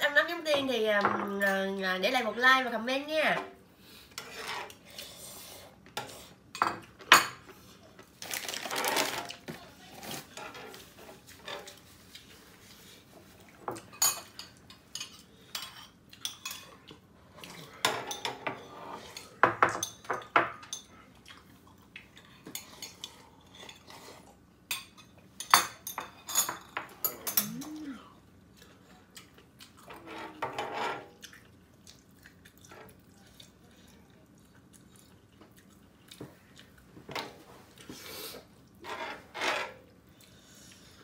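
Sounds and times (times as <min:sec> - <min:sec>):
utensils clinking on ceramic bowls: 0:24.7 - 0:27.7.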